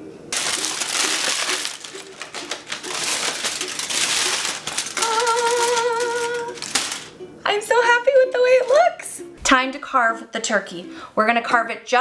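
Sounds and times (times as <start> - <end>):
aluminium foil crinkling: 0.3 - 7.1
person humming: 4.9 - 6.7.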